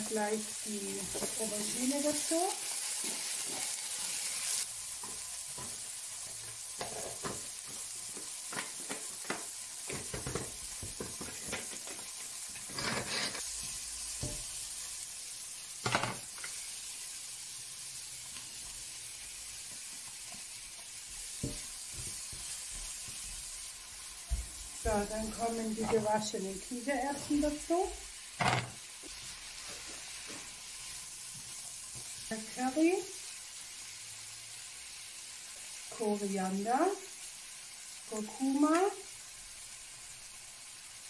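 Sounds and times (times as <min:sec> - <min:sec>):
vegetables sizzling in a pan: 0:00.0 - 0:41.0
spatula scraping a pan: 0:10.0 - 0:13.6.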